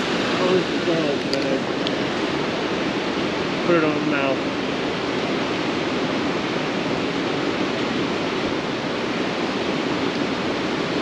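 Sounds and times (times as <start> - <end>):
creek water flowing: 0.0 - 11.0.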